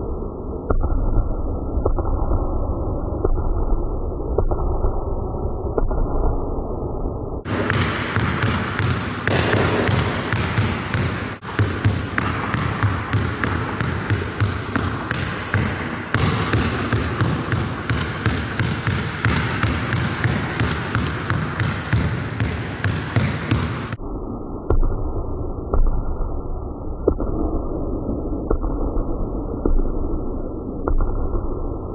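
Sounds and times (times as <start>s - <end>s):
basketballs bouncing on court: 7.4s - 24.0s.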